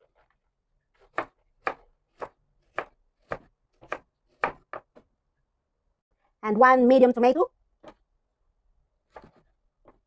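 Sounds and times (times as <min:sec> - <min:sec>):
knife slicing onion on wooden board: 0:01.0 - 0:05.0, 0:09.0 - 0:10.0.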